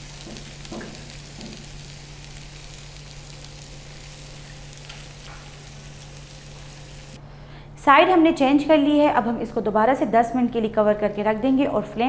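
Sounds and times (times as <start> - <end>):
meat sizzling in a pan: 0.0 - 7.2.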